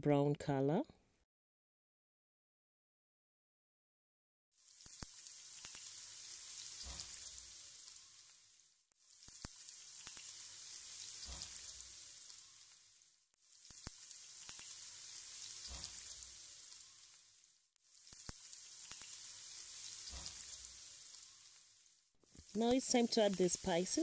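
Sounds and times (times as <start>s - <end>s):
meat sizzling in oil: 4.6s - 24.0s.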